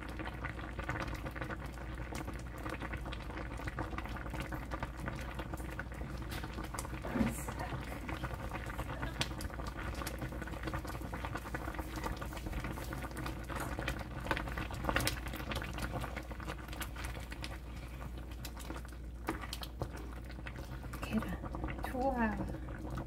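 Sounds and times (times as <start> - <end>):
sauce bubbling and popping in pan: 0.0 - 23.0
utensil stirring sauce: 6.3 - 23.0.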